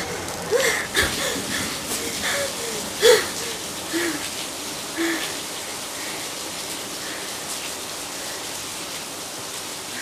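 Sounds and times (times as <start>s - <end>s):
woman breathing: 0.0s - 4.4s, 5.0s - 6.4s
steady hiss: 0.0s - 10.0s.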